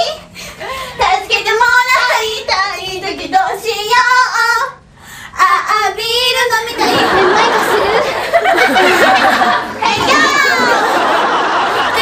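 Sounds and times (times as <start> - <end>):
girls singing unaccompanied: 1.0 - 4.8.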